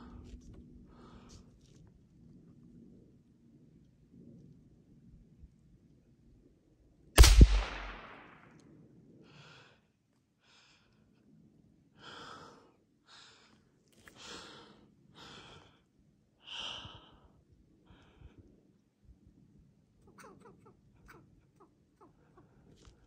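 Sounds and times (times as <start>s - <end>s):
gunshot with echo: 7.2s - 8.4s.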